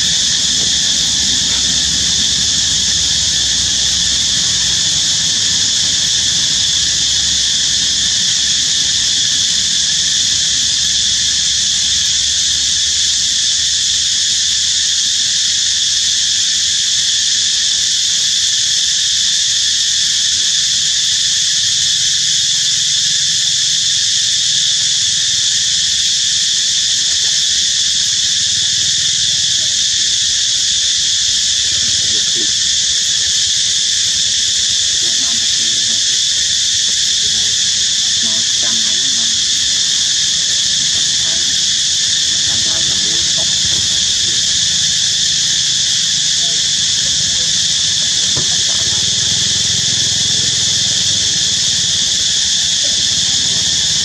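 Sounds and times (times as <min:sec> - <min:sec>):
insect chorus drone: 0:00.0 - 0:54.0.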